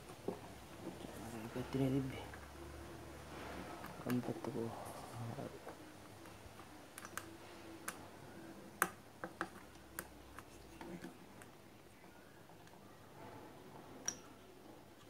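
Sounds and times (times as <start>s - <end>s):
small parts clicking and tapping: 6.2s - 8.0s.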